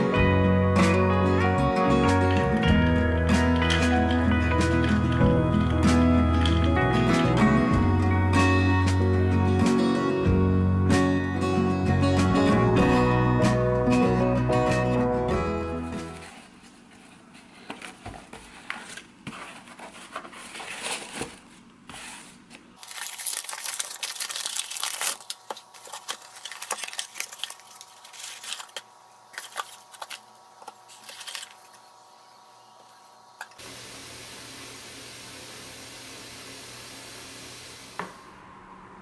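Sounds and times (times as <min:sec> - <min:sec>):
wrapping paper crinkling: 0:16.2 - 0:32.0.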